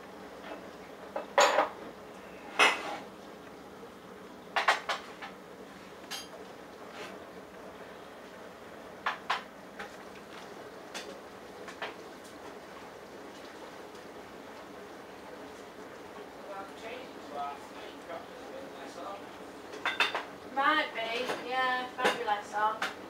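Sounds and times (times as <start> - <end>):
washing machine water swishing: 9.6 - 18.6.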